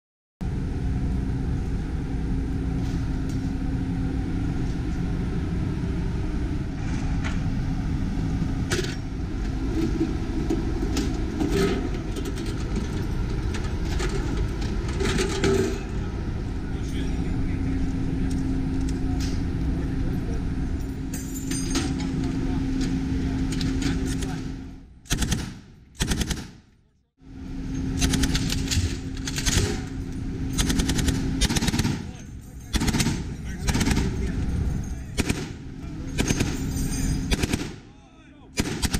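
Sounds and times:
ship deck low rumble: 0:00.4 - 0:25.1
faint constant hum: 0:00.4 - 0:38.9
machine-gun fire: 0:25.1 - 0:26.6, 0:28.0 - 0:28.7, 0:30.6 - 0:32.1, 0:32.7 - 0:34.2, 0:35.2 - 0:35.6, 0:36.2 - 0:36.7, 0:37.3 - 0:37.8, 0:38.6 - 0:38.9.

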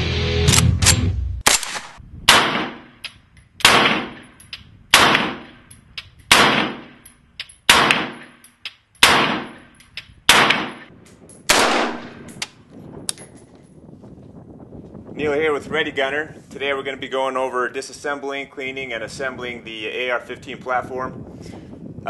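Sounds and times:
rifle shots echoing: 0:01.4 - 0:03.0, 0:03.6 - 0:04.3, 0:04.9 - 0:05.6, 0:06.3 - 0:07.1, 0:07.7 - 0:08.4, 0:09.0 - 0:09.7, 0:10.3 - 0:10.9, 0:11.5 - 0:12.4.

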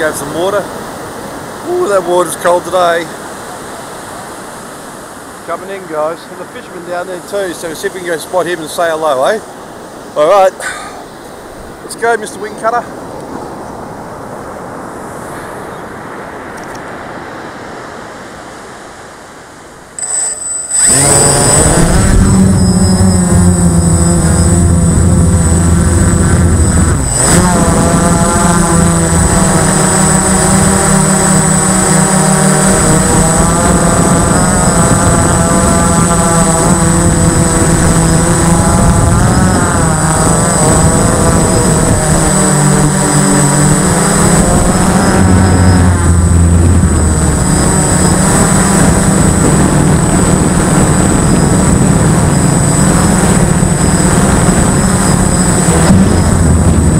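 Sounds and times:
model aircraft motor buzzing: 0:19.9 - 0:56.9.

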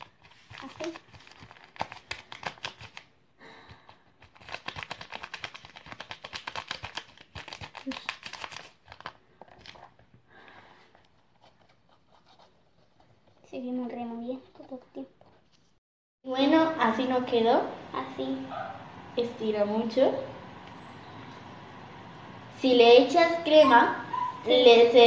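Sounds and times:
bag crinkling: 0:00.0 - 0:03.1, 0:04.2 - 0:10.2
scratchy stirring and scraping: 0:04.2 - 0:15.8.

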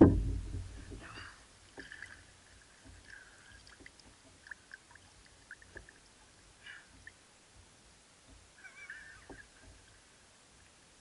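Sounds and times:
landing net knocks: 0:00.0 - 0:01.0.

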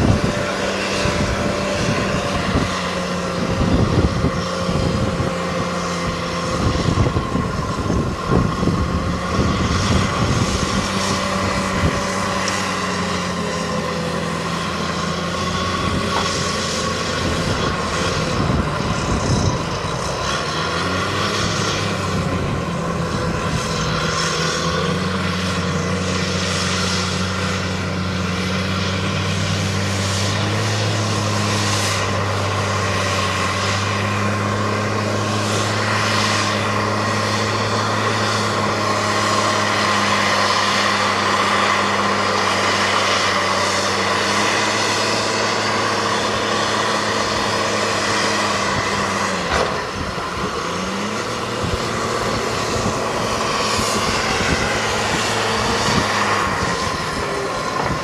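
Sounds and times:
diesel engines droning: 0:00.0 - 0:58.0.

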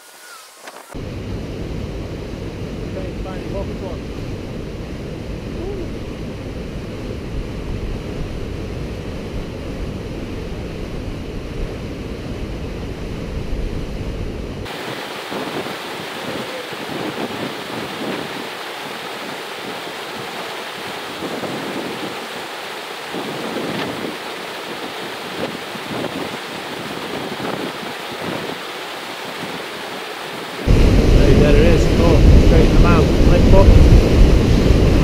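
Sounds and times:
wind buffeting microphone: 0:00.9 - 0:35.0
rushing white water: 0:14.6 - 0:35.0.

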